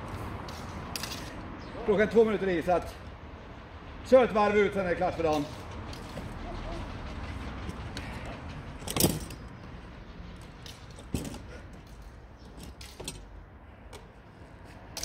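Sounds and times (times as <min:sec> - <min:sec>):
fencing blades clashing: 0:00.6 - 0:01.4.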